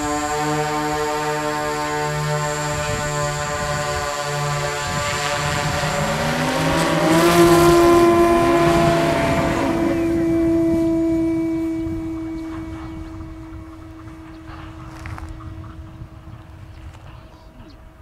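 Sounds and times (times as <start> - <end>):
drone rotors humming: 0.0 - 18.0
propeller motor whine: 0.0 - 18.0.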